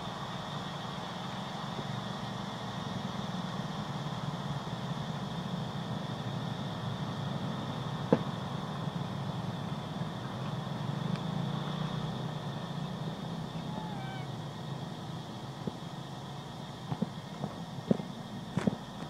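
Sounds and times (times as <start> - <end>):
distant road traffic rumble: 0.0 - 19.0
faint high hum: 12.2 - 19.0
faint wavering chirp: 13.5 - 14.7.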